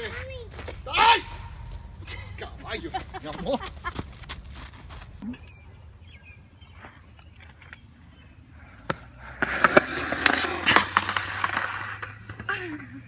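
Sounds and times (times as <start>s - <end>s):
skateboard wheels rolling: 8.6s - 13.0s
skateboard clattering on concrete: 8.9s - 12.8s.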